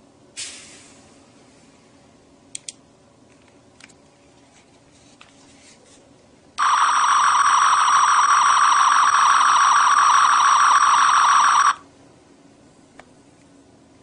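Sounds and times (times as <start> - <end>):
buzzing electronic firing sound: 6.6 - 11.8.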